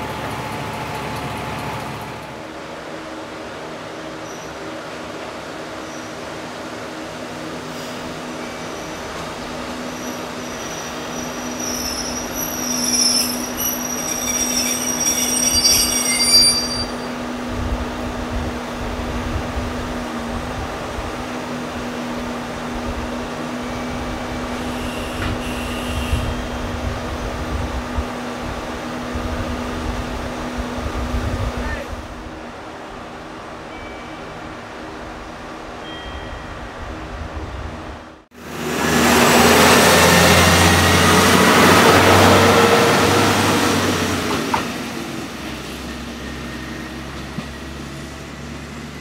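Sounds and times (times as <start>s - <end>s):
train wheels squealing: 4.2s - 4.6s, 8.4s - 17.2s, 23.6s - 26.8s, 45.7s - 49.0s.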